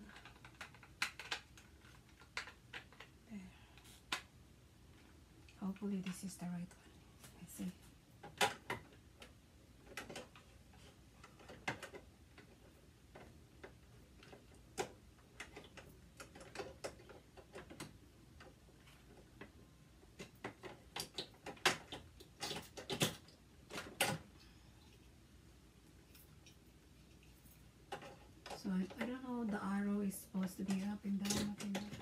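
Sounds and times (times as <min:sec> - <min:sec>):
plastic pieces clicking and knocking: 0:00.0 - 0:03.2, 0:08.2 - 0:24.4, 0:27.8 - 0:29.7, 0:30.4 - 0:32.0.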